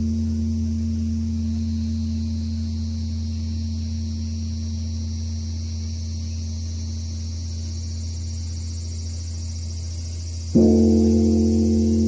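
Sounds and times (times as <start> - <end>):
temple bell humming: 0.0 - 5.0, 10.6 - 12.0.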